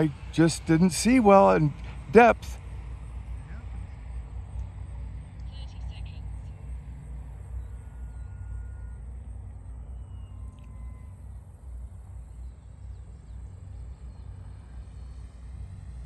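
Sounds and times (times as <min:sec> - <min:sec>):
model airplane motor whine: 0:07.5 - 0:16.0.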